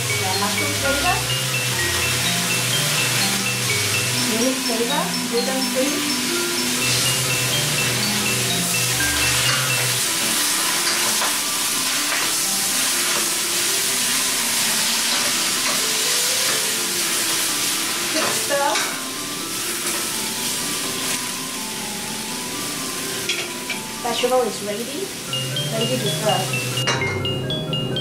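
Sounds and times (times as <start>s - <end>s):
vegetables sizzling in a pan: 0.0s - 26.8s.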